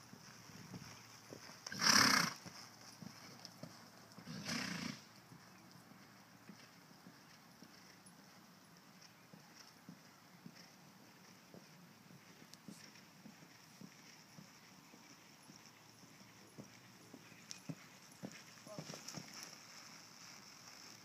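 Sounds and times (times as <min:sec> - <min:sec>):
faint hoofbeats: 0:00.0 - 0:21.0
horse snorting: 0:01.6 - 0:02.4, 0:04.2 - 0:05.1.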